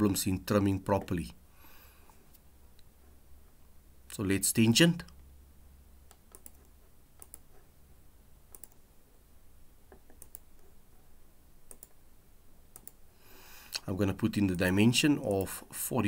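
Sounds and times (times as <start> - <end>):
faint low hum: 0.0 - 16.0
computer mouse clicks: 6.0 - 7.6, 8.5 - 8.8, 9.9 - 10.7, 11.6 - 12.0, 12.7 - 13.0.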